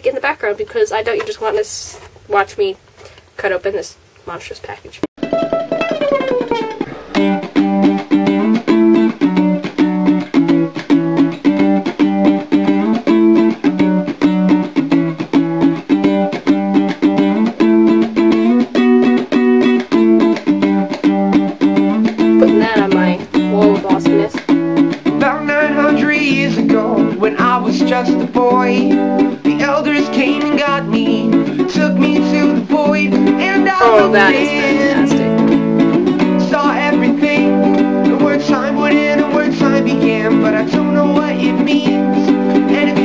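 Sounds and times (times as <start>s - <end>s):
upbeat strummed string music: 22.4s - 24.4s, 33.8s - 35.3s.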